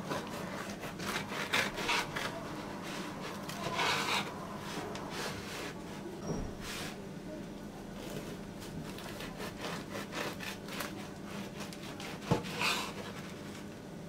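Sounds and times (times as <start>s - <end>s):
bread knife sawing: 0.0s - 5.8s, 8.2s - 13.4s.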